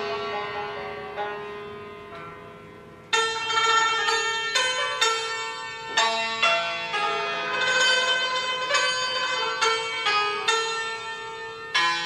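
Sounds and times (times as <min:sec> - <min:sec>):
plucked string instrument music: 0:00.0 - 0:12.0.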